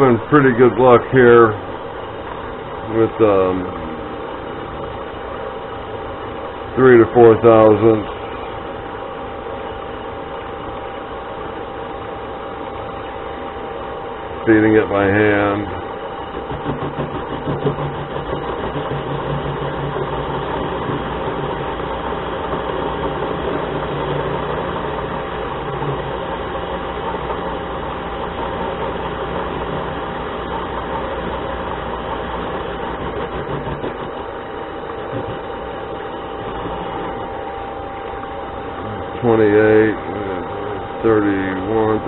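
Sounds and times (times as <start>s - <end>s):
lathe motor whine: 0.0s - 42.0s
lathe tool cutting metal: 13.9s - 42.0s.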